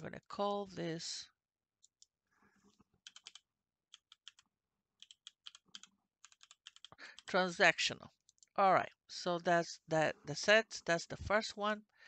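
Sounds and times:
faint keyboard typing: 0:03.0 - 0:07.4.

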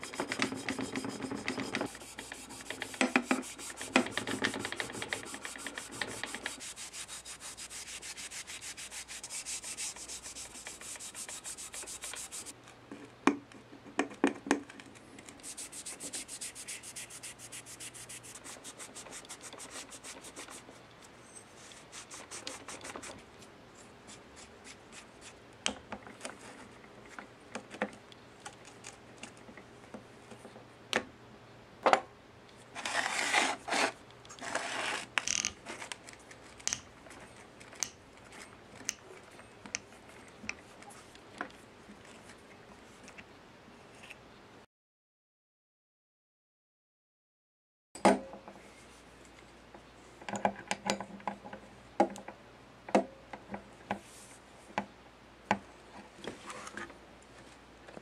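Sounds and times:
glove rubbing metal housing: 0:00.0 - 0:12.5.

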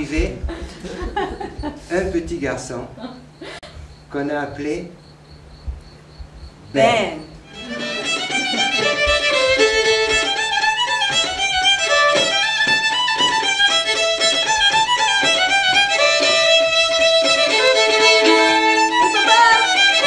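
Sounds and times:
fiddle playing quick melody: 0:07.4 - 0:20.0.

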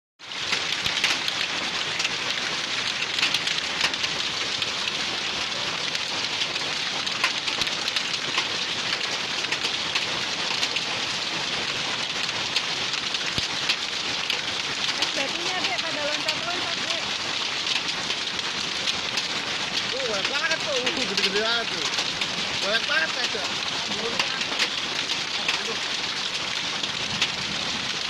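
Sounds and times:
hailstones ticking: 0:00.2 - 0:28.0
heavy rain hissing: 0:00.2 - 0:28.0.

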